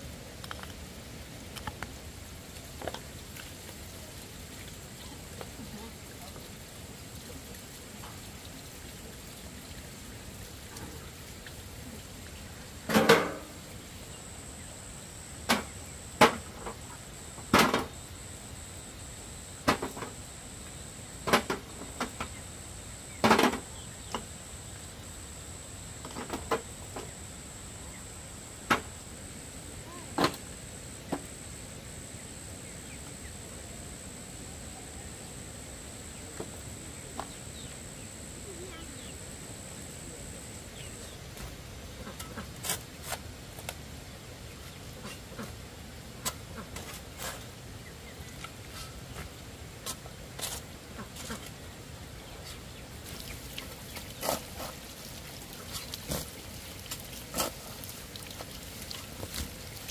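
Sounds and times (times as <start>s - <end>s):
faint high-pitched tone: 16.6s - 41.3s.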